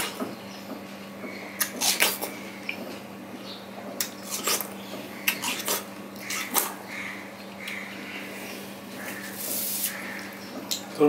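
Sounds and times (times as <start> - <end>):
mouth smacks: 1.6 - 2.8, 4.0 - 6.8
chewing watermelon: 4.0 - 6.8.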